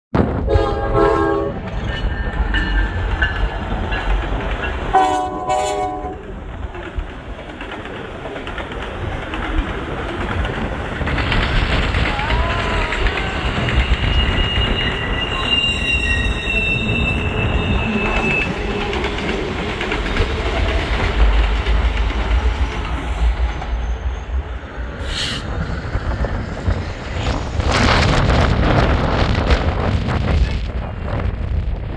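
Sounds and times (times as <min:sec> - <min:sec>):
freight train rolling on rails: 0:00.2 - 0:31.9
wind gusts on microphone: 0:08.0 - 0:31.9
high wheel squeal: 0:13.1 - 0:19.2.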